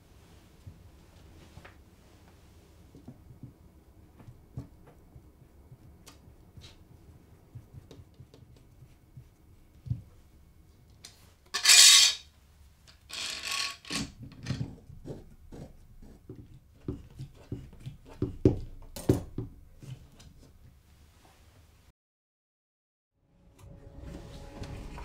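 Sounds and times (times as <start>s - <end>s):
metal clamp scraping: 11.6s - 12.2s.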